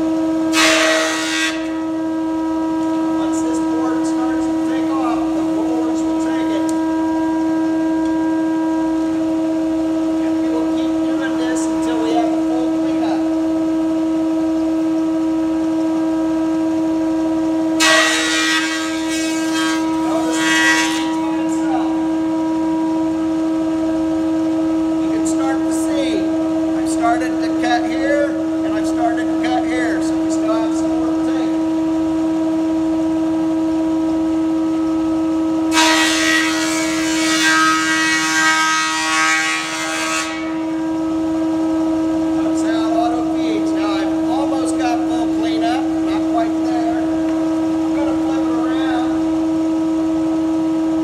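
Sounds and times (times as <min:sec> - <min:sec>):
thickness planer whining: 0:00.0 - 0:13.5, 0:17.7 - 0:31.7, 0:35.7 - 0:49.6
planer cutting wood: 0:00.5 - 0:02.0, 0:17.8 - 0:22.2, 0:35.7 - 0:40.9.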